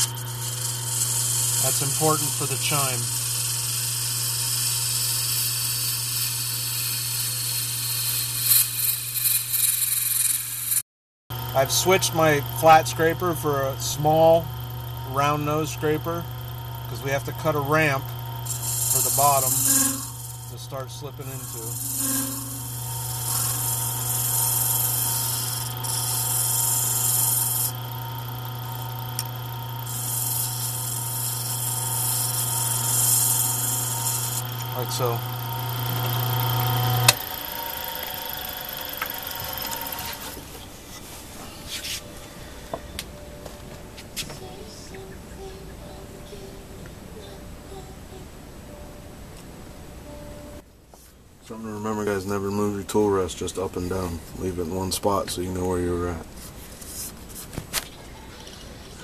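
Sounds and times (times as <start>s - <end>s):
wood lathe humming: 0.0s - 8.6s, 11.3s - 42.0s
scraper cutting spinning horn: 0.0s - 10.8s, 11.4s - 40.5s.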